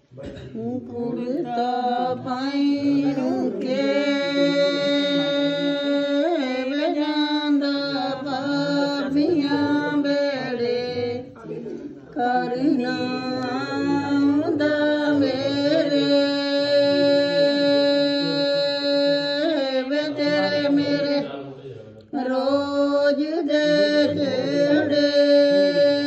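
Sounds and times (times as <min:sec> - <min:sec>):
woman singing unaccompanied folk song: 0:12.2 - 0:21.2, 0:22.2 - 0:26.0.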